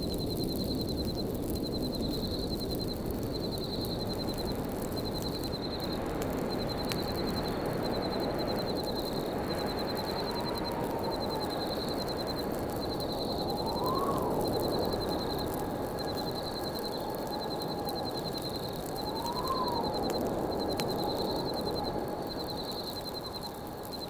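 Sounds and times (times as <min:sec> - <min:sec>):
campfire crackling: 0:00.0 - 0:24.0
wind whistling: 0:00.2 - 0:24.0.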